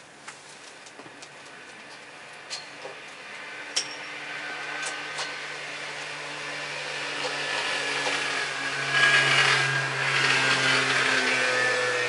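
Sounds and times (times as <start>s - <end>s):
vehicle engine droning past: 3.3s - 12.0s.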